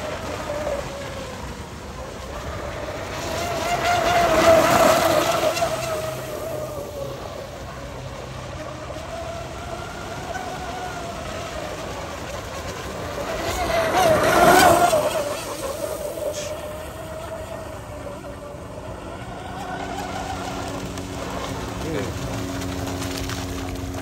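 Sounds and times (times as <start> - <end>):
rc boat motor whining: 0.0 - 24.0.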